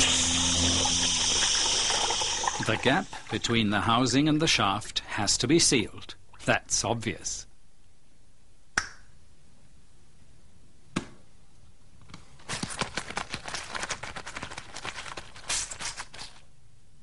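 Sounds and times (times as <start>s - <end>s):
adhesive tape pulled off roll: 12.4s - 16.5s.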